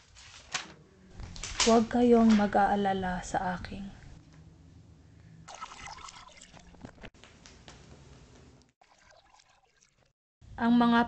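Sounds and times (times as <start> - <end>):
water splashing and trickling: 5.5 - 7.1, 8.8 - 10.2.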